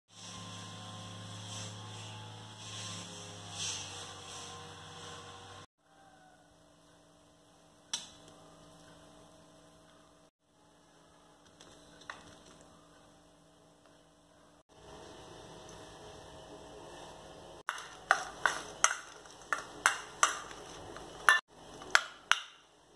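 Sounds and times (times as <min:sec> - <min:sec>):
electrical mains hum: 0:06.4 - 0:22.9.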